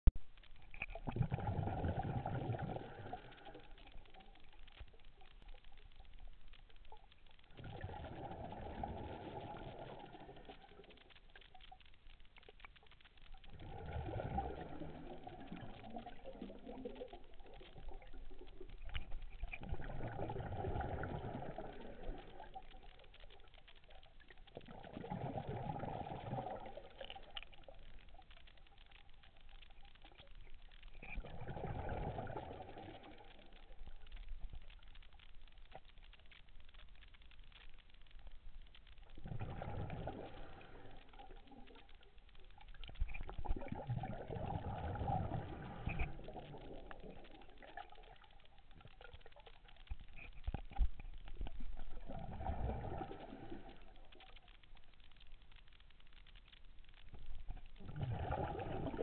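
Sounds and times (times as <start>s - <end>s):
exhaled breath bubbling underwater: 1.0s - 3.6s, 7.5s - 10.8s, 13.5s - 18.2s, 19.5s - 22.5s, 24.6s - 27.0s, 31.2s - 33.4s, 39.2s - 41.7s, 43.4s - 47.9s, 52.0s - 54.1s, 57.8s - 59.0s.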